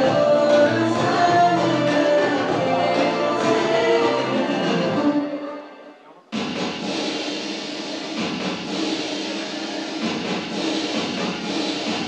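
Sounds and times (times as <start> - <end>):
pop music with steady beat: 0.0 - 12.0.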